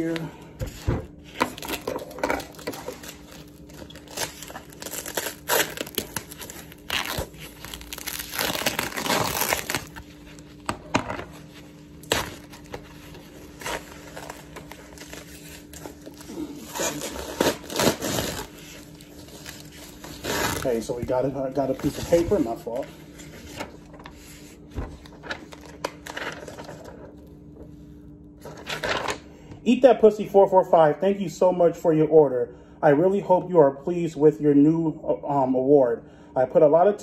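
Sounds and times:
bubble wrap crinkling: 0.0 - 10.7, 11.3 - 27.3
bubble wrap crackles: 1.2 - 10.7, 11.4 - 22.8.

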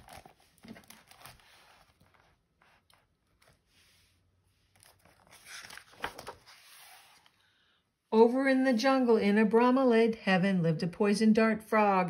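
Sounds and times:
book pages rustling: 0.0 - 7.5.

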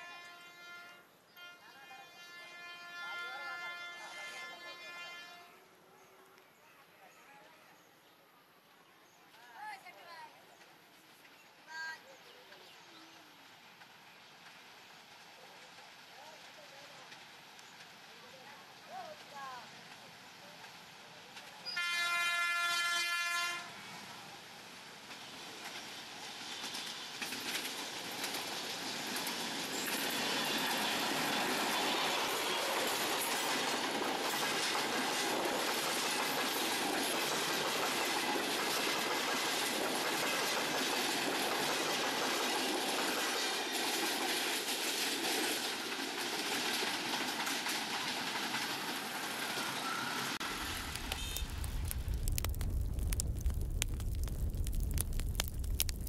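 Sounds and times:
train passing with wheel clatter: 0.0 - 7.0, 8.5 - 56.0
locomotive horn blast: 21.8 - 23.8.

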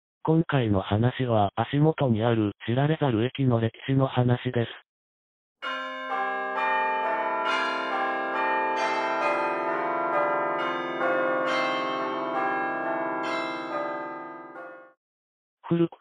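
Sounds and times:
bells ringing: 5.6 - 15.0.

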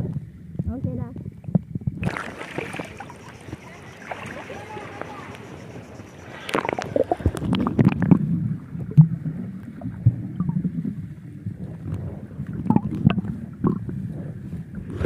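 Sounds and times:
underwater rumble of moving water: 0.0 - 15.0
underwater clicks and pops: 6.4 - 8.3, 11.8 - 13.9.

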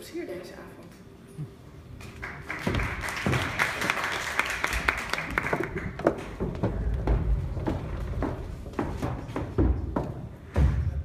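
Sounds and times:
audience applauding: 2.0 - 6.6.

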